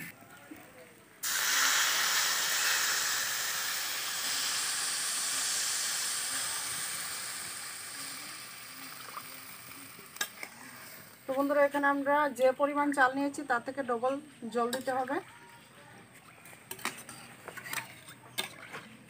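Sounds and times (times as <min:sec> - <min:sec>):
hot pan hissing and sizzling: 0:01.2 - 0:11.2
water poured into pan: 0:01.2 - 0:11.2.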